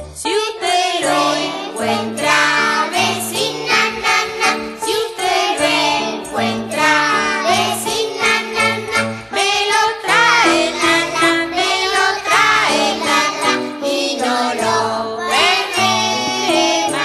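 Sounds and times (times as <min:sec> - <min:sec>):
person singing: 0:00.0 - 0:03.8, 0:09.3 - 0:17.0
upbeat instrumental accompaniment: 0:00.0 - 0:17.0.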